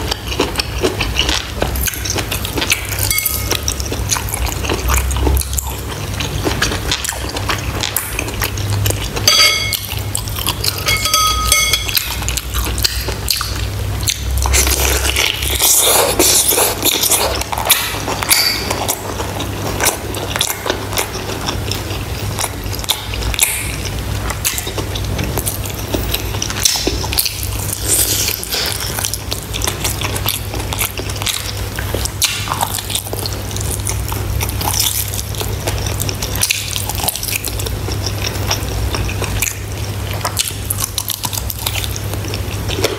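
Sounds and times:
wet chewing and sucking: 0:00.0 - 0:11.0, 0:11.9 - 0:42.9
steady low hum: 0:00.0 - 0:42.9
metal spoon against ceramic bowl: 0:02.9 - 0:03.7, 0:09.2 - 0:10.0, 0:10.6 - 0:12.3, 0:18.2 - 0:18.8.

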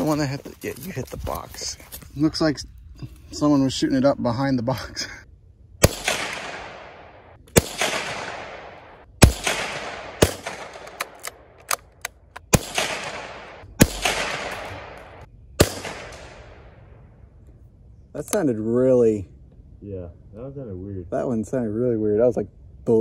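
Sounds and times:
rifle shots: 0:05.8 - 0:16.9.

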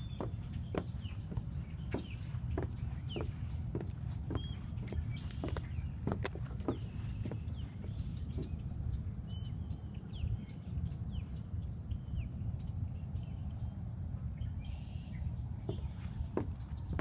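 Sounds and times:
footsteps on wooden boardwalk: 0:00.0 - 0:08.7, 0:15.6 - 0:17.0
marsh birds chirping: 0:00.0 - 0:17.0
steady low rumble: 0:00.0 - 0:17.0.

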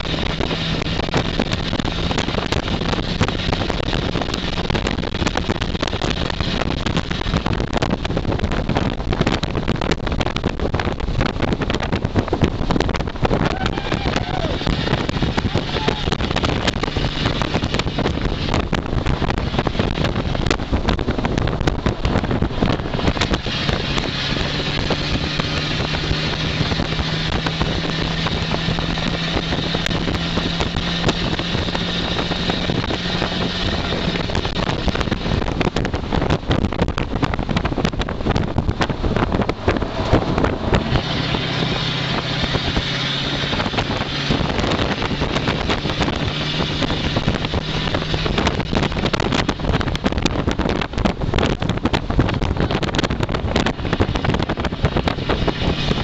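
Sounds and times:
race car engine running: 0:00.0 - 0:56.0
rush of wind and road: 0:00.0 - 0:56.0.

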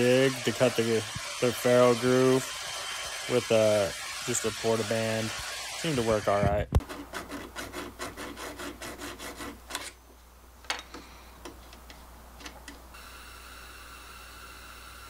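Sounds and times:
steady hiss: 0:00.0 - 0:06.7
file rasping on metal: 0:00.0 - 0:09.9.

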